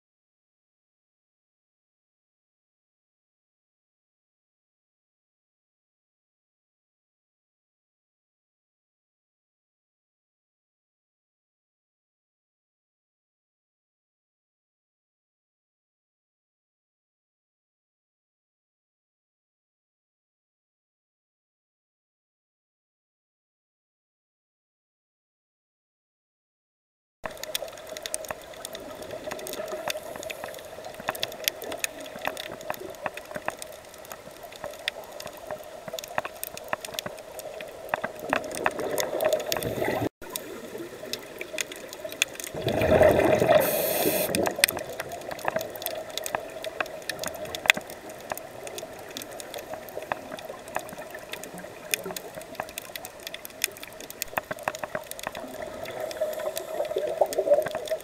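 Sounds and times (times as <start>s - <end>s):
scuba bubbles gurgling: 27.3s - 58.0s
underwater hum: 27.3s - 58.0s
snapping shrimp crackling clicks: 44.3s - 55.5s.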